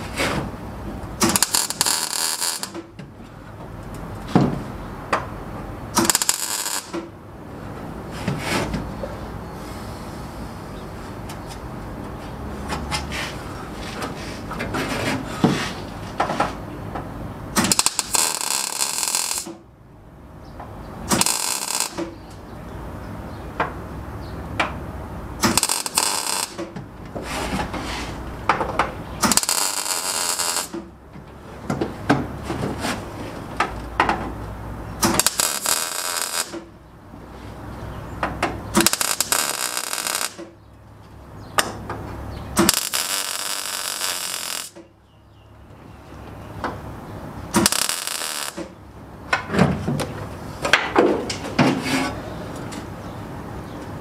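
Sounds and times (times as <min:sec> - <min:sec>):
welder arc sizzling: 0:01.2 - 0:02.8, 0:06.0 - 0:06.9, 0:17.6 - 0:19.6, 0:21.1 - 0:22.2, 0:25.4 - 0:26.6, 0:29.2 - 0:30.8, 0:35.0 - 0:36.6, 0:38.8 - 0:40.4, 0:42.6 - 0:44.8, 0:47.6 - 0:48.7.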